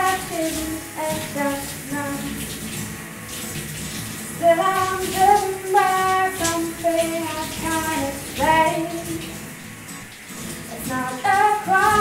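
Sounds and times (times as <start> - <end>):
woman singing: 0.0 - 2.4, 4.4 - 9.4, 10.7 - 12.0
shower water running: 0.0 - 12.0.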